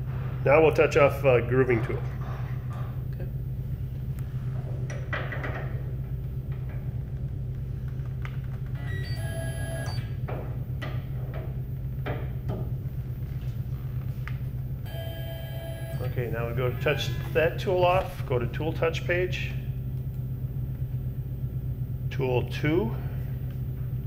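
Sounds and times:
low machine hum: 0.0 - 24.0
brief ringing tone: 14.9 - 17.2.

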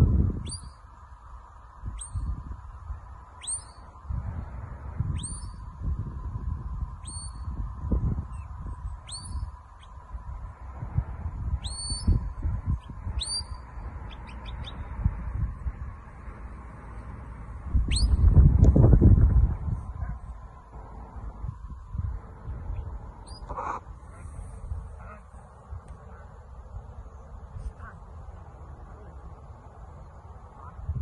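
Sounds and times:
wind rumble on microphone: 0.0 - 31.0
shepherd's whistles: 9.1 - 9.4, 13.2 - 13.6, 17.9 - 18.2.

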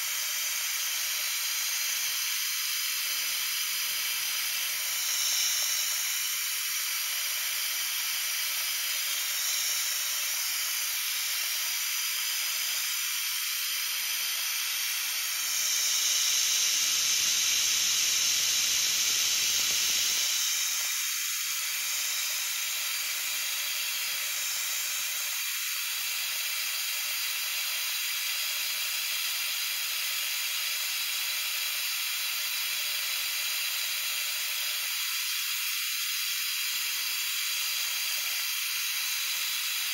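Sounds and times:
milling machine cutting metal: 0.1 - 26.4, 34.7 - 39.9.

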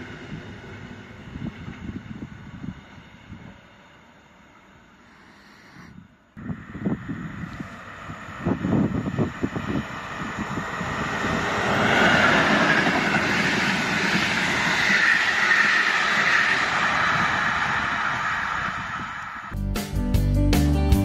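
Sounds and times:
train wheels rumbling on rails: 6.4 - 19.6.

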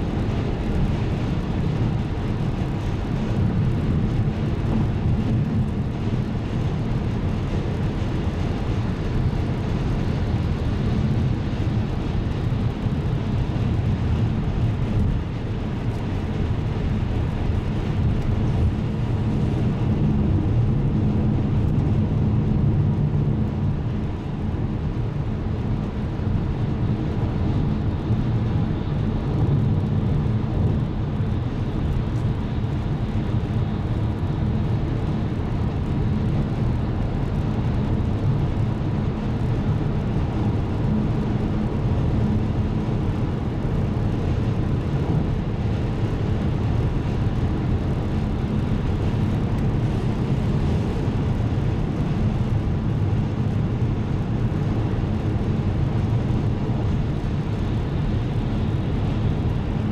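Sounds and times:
car road and engine noise: 0.0 - 59.9.

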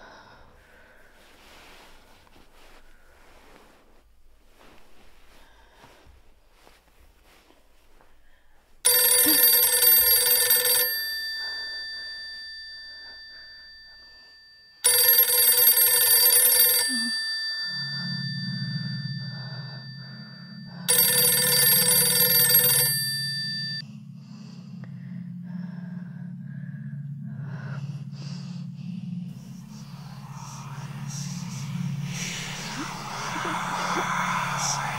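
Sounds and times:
phone ringtone ringing: 8.8 - 23.8
low steady hum: 23.0 - 34.9.

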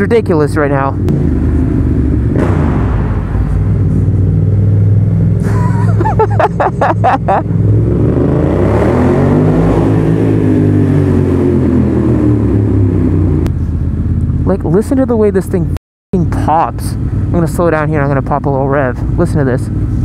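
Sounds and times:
loud motorcycle engine revving: 1.0 - 6.3, 6.9 - 13.5.

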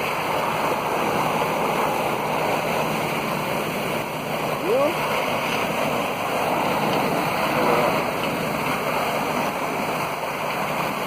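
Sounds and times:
high-pressure water jet rushing: 0.0 - 11.0.

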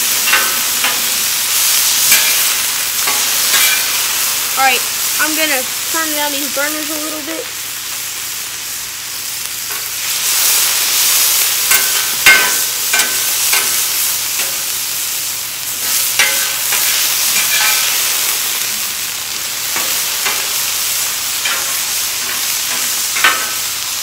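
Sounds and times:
meat sizzling on a griddle: 0.0 - 24.0
metal spatula clanking on griddle: 0.2 - 4.2, 11.7 - 14.7, 15.8 - 18.7, 19.6 - 23.8.

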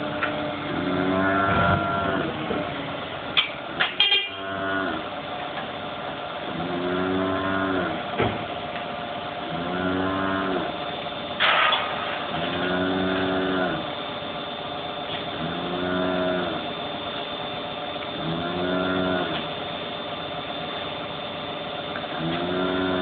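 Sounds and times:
cattle mooing: 0.7 - 2.4, 4.2 - 5.1, 6.5 - 8.1, 9.5 - 10.8, 12.3 - 13.9, 15.4 - 16.7, 18.2 - 19.4, 22.2 - 23.0.

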